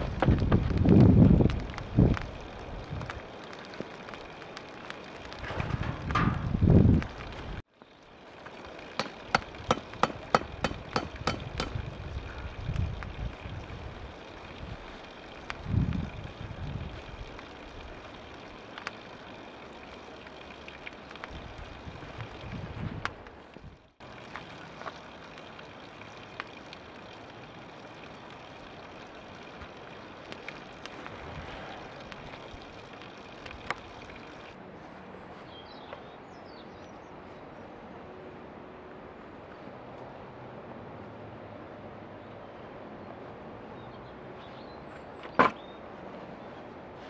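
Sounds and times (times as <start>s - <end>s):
wind buffeting microphone: 0.0s - 3.3s, 5.3s - 7.6s, 10.4s - 18.1s, 21.2s - 23.9s
wood fire crackling: 0.0s - 34.6s
steady outdoor noise: 0.0s - 47.0s.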